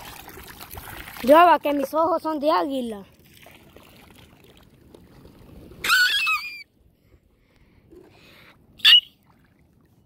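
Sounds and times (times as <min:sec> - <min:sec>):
shrill wavering bird call: 0:08.8 - 0:09.2.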